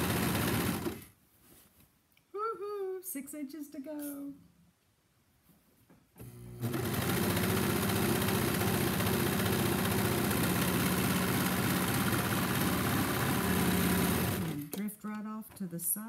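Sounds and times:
overlock sewing machine stitching: 0.0 - 1.1, 6.2 - 15.0.

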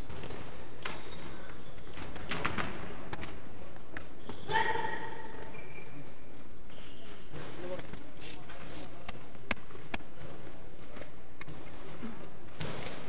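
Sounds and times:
punches and footwork thuds: 11.5 - 13.0.

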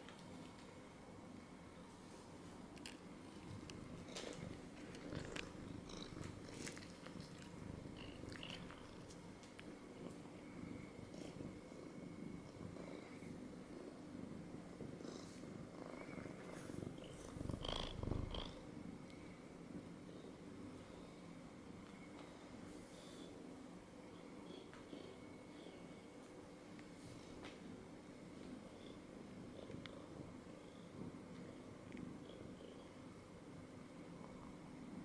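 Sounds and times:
cat purring: 2.8 - 21.2.

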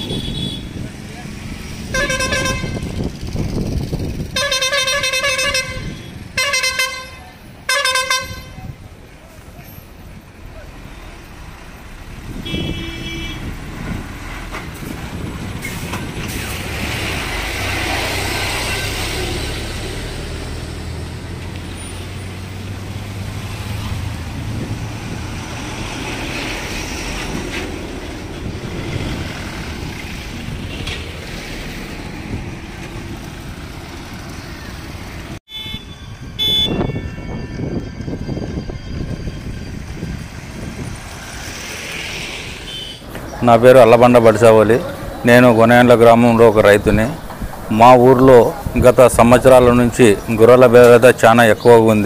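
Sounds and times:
vehicle horn honking: 0.0 - 0.8, 1.9 - 2.9, 4.3 - 8.7, 12.4 - 13.5, 18.4 - 19.2, 35.5 - 37.8, 42.6 - 43.1
heavy lorries passing: 0.0 - 52.0.

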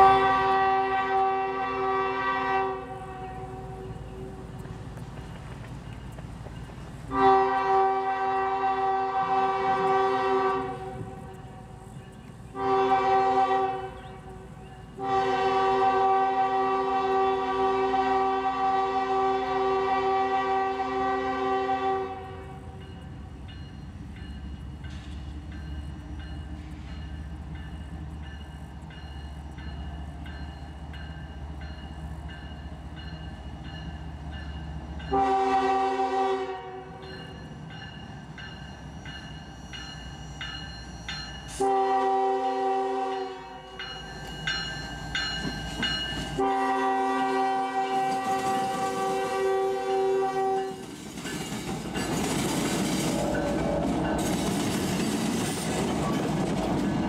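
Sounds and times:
locomotive air horn blasts: 0.0 - 4.4, 7.1 - 11.7, 12.6 - 14.4, 15.0 - 22.8, 35.1 - 37.0, 41.5 - 43.7, 46.3 - 50.8.

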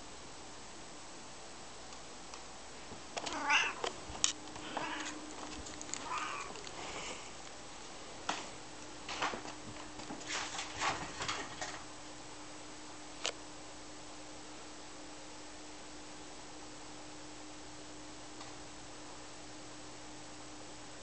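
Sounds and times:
cat meowing: 3.2 - 3.9, 4.6 - 5.2, 6.0 - 6.6.

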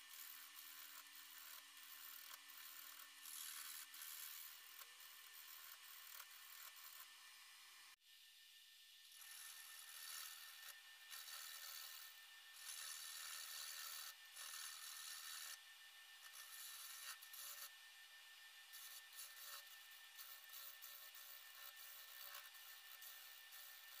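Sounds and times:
tool cutting into wood: 16.3 - 17.8.

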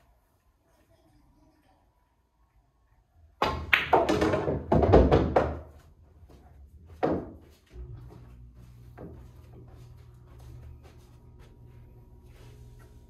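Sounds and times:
pool balls clacking: 3.4 - 5.7.

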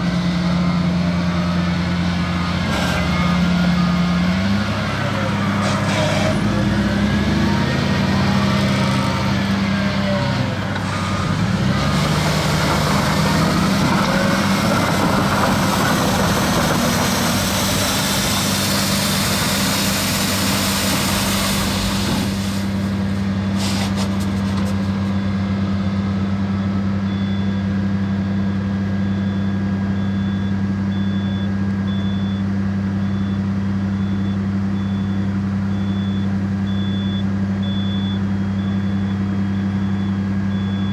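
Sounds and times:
diesel engine running: 0.0 - 40.9
sweeper brush hissing on asphalt: 23.6 - 24.0
reversing alarm beeps: 26.6 - 27.7, 29.0 - 40.9.

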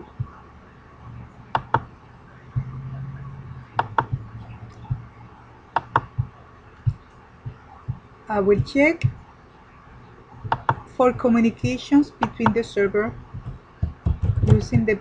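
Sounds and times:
low hum: 0.0 - 15.0
computer mouse button clicks: 1.6 - 1.8, 5.8 - 6.1.

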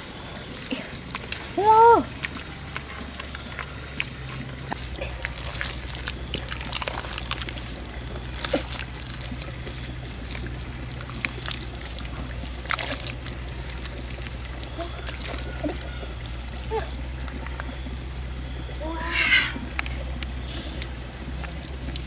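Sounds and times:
thin high tone: 0.0 - 8.8
water trickling: 0.0 - 22.0
hands squelching in wet mud: 1.1 - 18.4, 19.3 - 22.0
small wet clicks and splashes: 2.1 - 18.8, 19.6 - 22.0.

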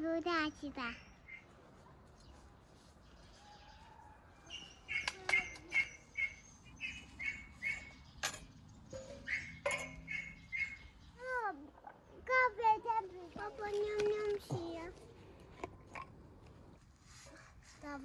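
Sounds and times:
bird chirping: 0.4 - 12.2
metallic clinks of skewers and pan: 8.2 - 10.0.

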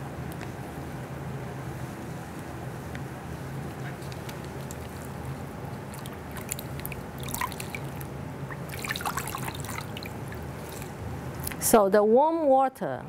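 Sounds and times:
low steady hum: 0.0 - 13.0
cloth being wrung out: 4.6 - 11.0
water trickling in metal bowl: 4.6 - 11.0.

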